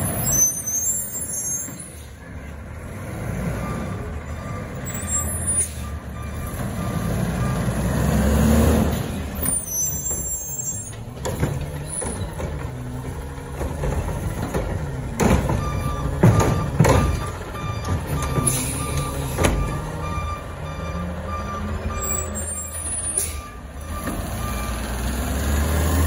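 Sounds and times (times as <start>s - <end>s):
garbage truck diesel engine revving: 2.5s - 26.0s
backup alarm beeping: 15.5s - 24.8s.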